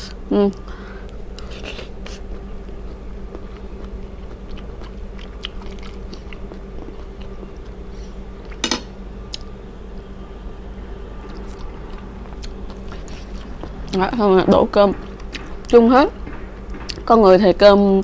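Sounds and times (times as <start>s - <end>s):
steady low hum: 0.0s - 18.0s
chewing food: 1.4s - 8.6s, 11.2s - 17.0s.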